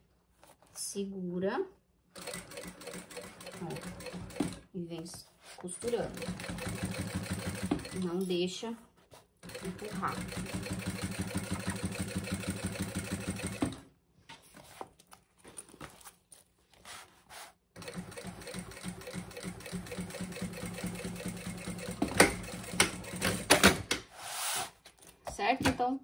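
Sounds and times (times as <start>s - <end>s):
sewing machine stitching: 2.2s - 4.7s, 5.7s - 8.2s, 9.4s - 13.8s, 17.8s - 23.7s
handling sounds: 14.2s - 17.5s.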